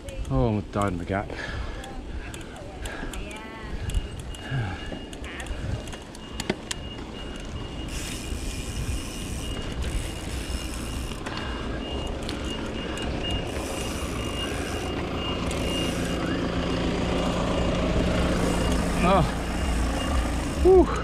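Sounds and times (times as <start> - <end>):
steady low hum: 1.4 - 21.0
bike tyre rumble: 3.6 - 21.0.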